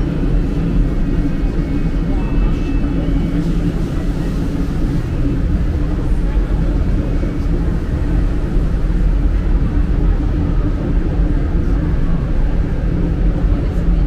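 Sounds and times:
funicular car rumbling on track: 0.0s - 14.0s.

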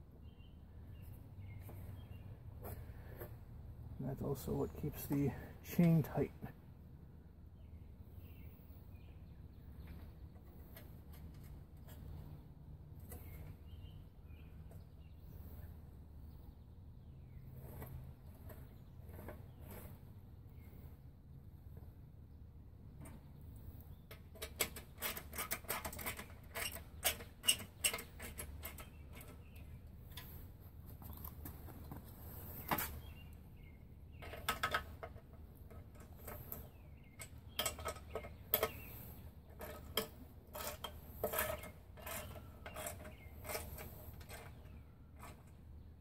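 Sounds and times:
metal parts clicking and rattling: 24.1s - 30.4s, 34.2s - 45.6s.

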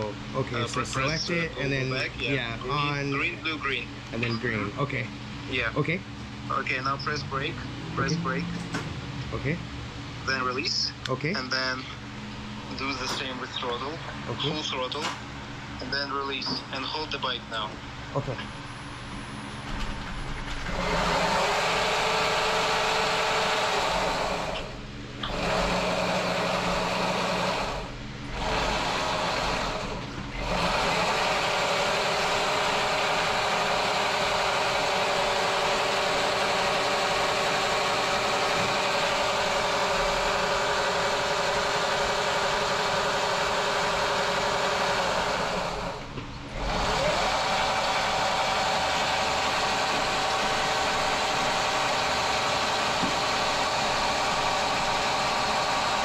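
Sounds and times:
electric motor whine: 20.5s - 56.0s.

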